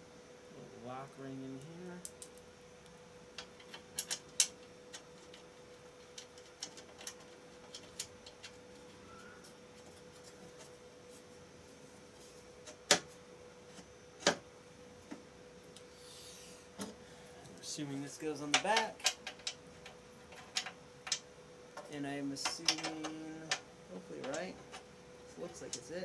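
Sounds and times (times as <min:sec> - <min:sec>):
faint steady hum: 0:00.0 - 0:26.0
small parts clicking and knocking: 0:03.4 - 0:09.0, 0:18.4 - 0:21.2, 0:21.8 - 0:26.0.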